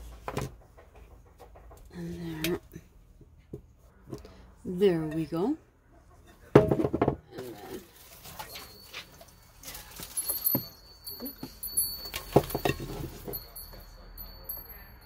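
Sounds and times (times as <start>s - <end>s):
metal bucket clattering: 6.5s - 13.5s.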